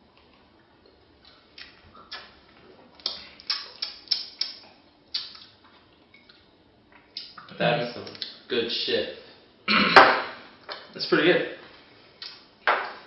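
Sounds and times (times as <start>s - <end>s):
mouth smacks and clicks: 1.2s - 2.4s, 3.0s - 5.6s, 6.2s - 7.5s.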